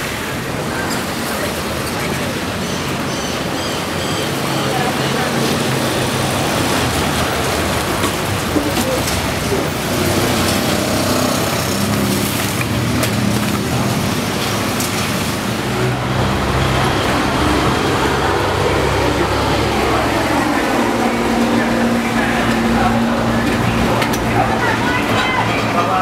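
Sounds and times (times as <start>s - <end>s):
indistinct voices: 0.0s - 26.0s
traffic noise: 0.0s - 26.0s.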